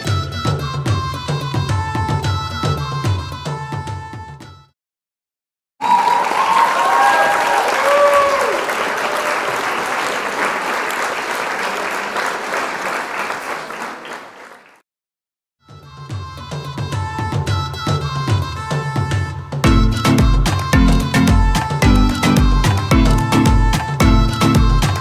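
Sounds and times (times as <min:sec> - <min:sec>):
high gliding cheers: 0:05.8 - 0:10.2
crowd applauding and cheering: 0:05.8 - 0:14.8, 0:19.6 - 0:25.0.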